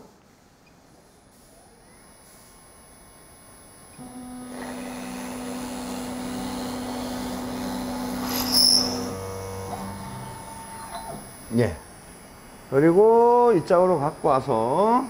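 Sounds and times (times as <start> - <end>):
spindle motor humming: 3.8 - 11.9
drill bit boring into wood: 4.0 - 11.2.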